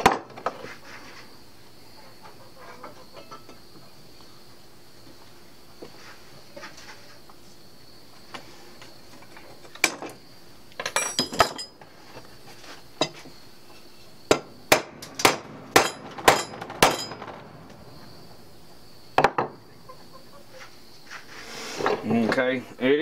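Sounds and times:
ringing metal clinks: 10.8s - 11.8s, 15.0s - 17.4s.

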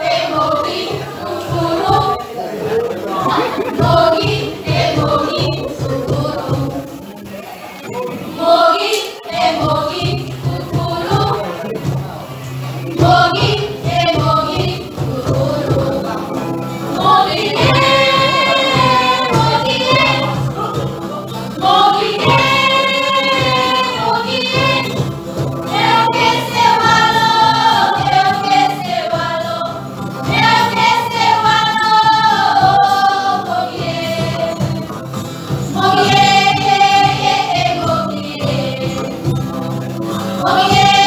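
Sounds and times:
women's choir singing: 0.0s - 41.0s.

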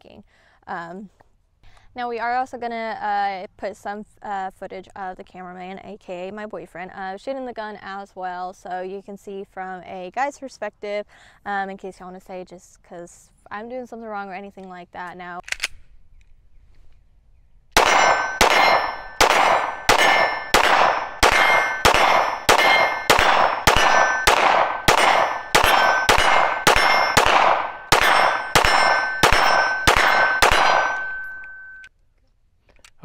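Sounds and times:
ringing tone: 17.8s - 24.4s, 25.1s - 31.9s
pistol shots with metallic clang: 17.8s - 31.9s.

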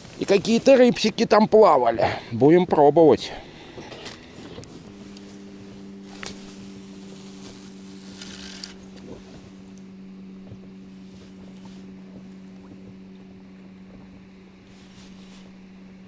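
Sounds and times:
low hum: 1.9s - 16.0s
fishing line hissing off reel: 6.0s - 8.9s
reel clicks: 6.1s - 9.1s.

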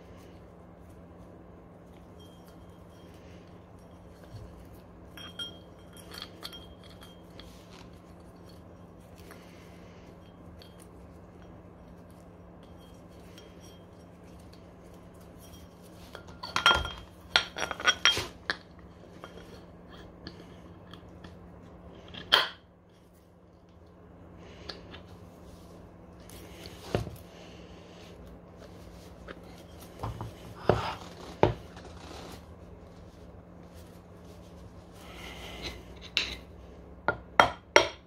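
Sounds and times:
steady low hum: 0.0s - 38.0s
metal tools clinking: 2.1s - 9.4s.

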